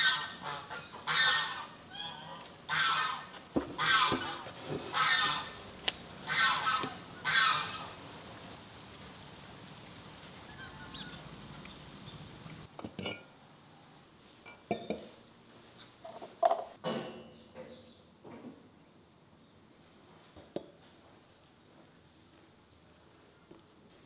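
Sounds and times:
geese honking: 0.0 - 5.6, 6.2 - 8.0.

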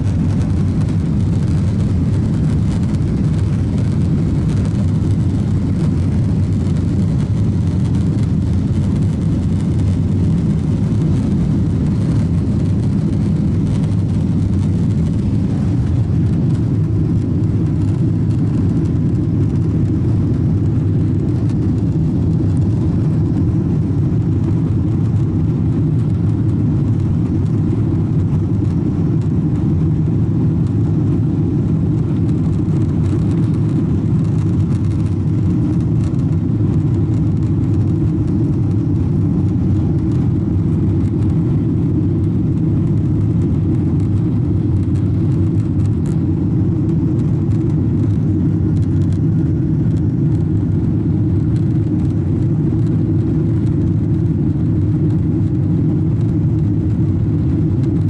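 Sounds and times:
jet engines rumbling in cabin: 0.0 - 58.0.

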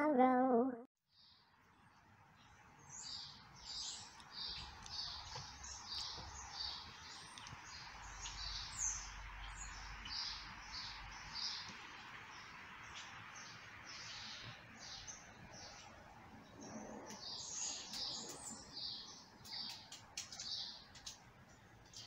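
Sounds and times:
birds chirping: 1.1 - 22.0
sharp clicks: 19.4 - 21.3.

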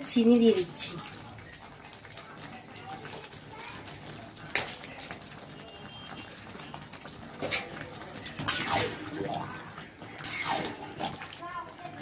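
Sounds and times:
curry cooking: 0.0 - 12.0
metal spatula scraping a pan: 7.4 - 9.1, 10.2 - 11.2.

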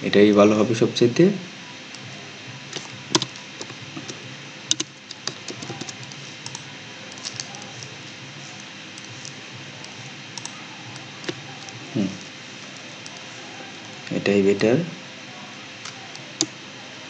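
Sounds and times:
faint steady hum: 0.0 - 17.0
keyboard and mouse clicking: 2.7 - 7.9, 8.6 - 11.8.

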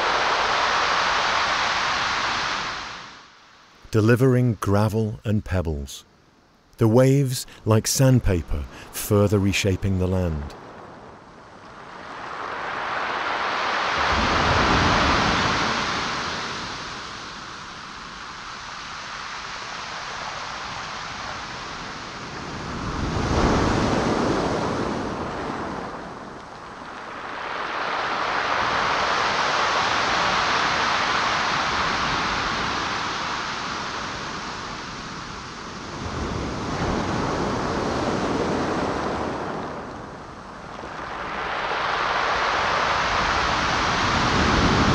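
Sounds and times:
surf breaking on pebble beach: 11.8 - 44.9.

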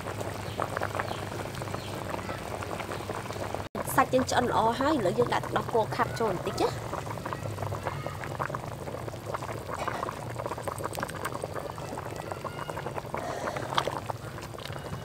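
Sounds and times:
curry boiling and bubbling: 0.0 - 15.0
liquid pouring into pot: 6.0 - 15.0.

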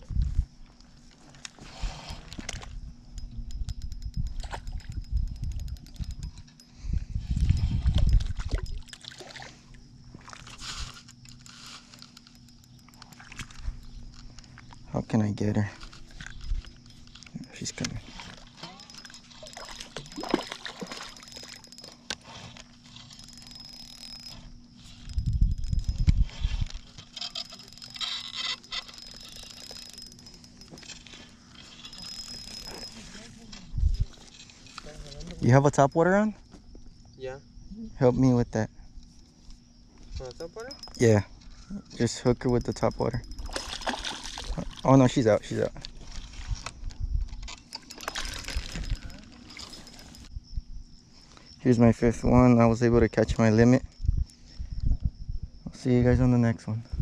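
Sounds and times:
fishing reel clicky rattling: 2.4 - 9.3, 10.4 - 35.5, 40.3 - 41.2, 41.8 - 50.3
fish splashing in water: 19.5 - 21.6, 43.5 - 44.8.

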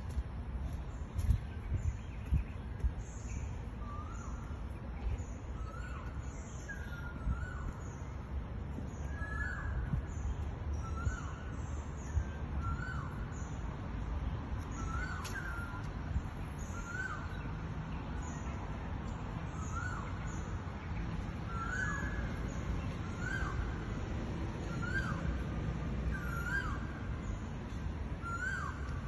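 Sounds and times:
bird calling: 21.4 - 23.7, 26.1 - 27.1, 28.2 - 29.0.

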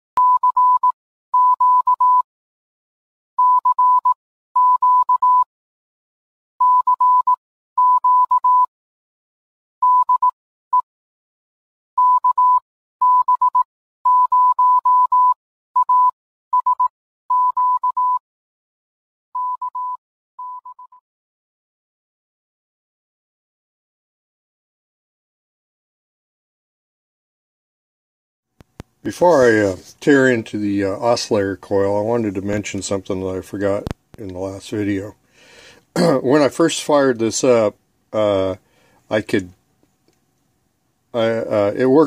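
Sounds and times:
morse code beeping: 0.2 - 2.2, 3.4 - 5.5, 6.6 - 8.7, 9.8 - 10.3, 12.0 - 18.2, 19.4 - 21.0.

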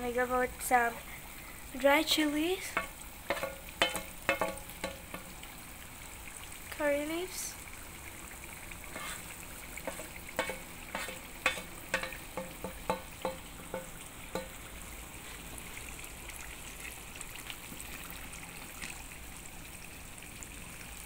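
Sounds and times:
spices sizzling in hot oil: 0.0 - 21.0
sharp pops and crackles: 2.7 - 5.4, 8.8 - 14.6.

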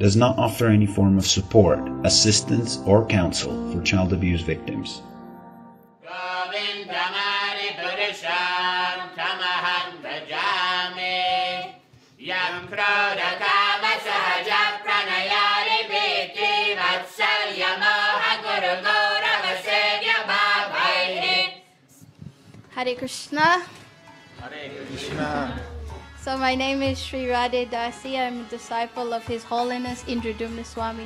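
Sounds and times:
voices singing a chant: 6.0 - 21.7.

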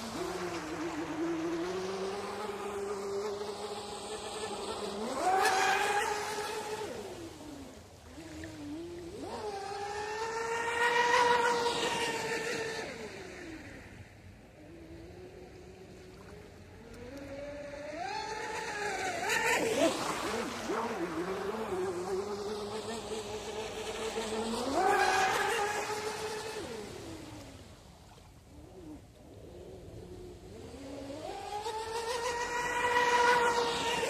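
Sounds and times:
electric boat motors whining: 29.8 - 34.0.

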